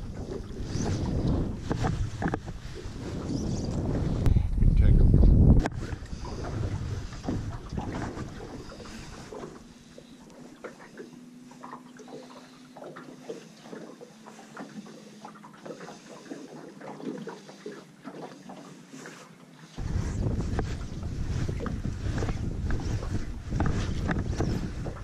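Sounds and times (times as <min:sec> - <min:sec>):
water slapping boat hull: 0:00.0 - 0:04.4, 0:05.1 - 0:25.0
wind on microphone: 0:00.0 - 0:09.7, 0:19.8 - 0:25.0.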